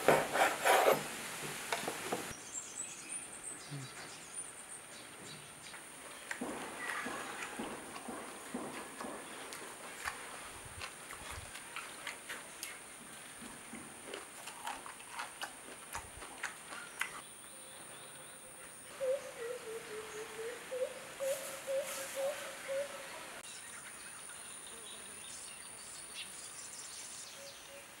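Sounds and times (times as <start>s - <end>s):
crunching and chewing: 6.3s - 17.2s
wavering bird call: 19.0s - 23.2s.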